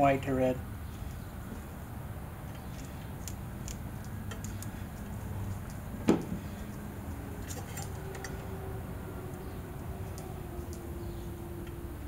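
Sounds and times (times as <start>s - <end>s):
wire connectors clicking: 2.8s - 6.8s, 9.3s - 11.8s.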